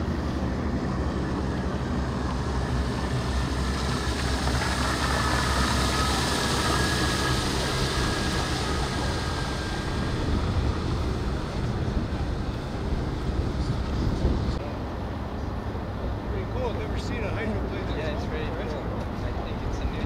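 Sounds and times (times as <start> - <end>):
water rushing: 0.0 - 14.6
wind hiss: 0.0 - 14.6
boat engine drone: 0.0 - 20.0
electric drive whining: 1.0 - 14.6.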